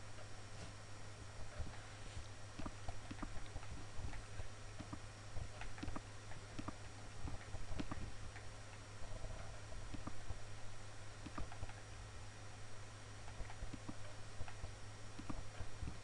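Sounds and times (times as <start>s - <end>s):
steady low hum: 0.0s - 16.0s
computer mouse clicking: 2.6s - 8.8s, 9.9s - 10.4s, 11.2s - 11.8s, 13.2s - 15.9s.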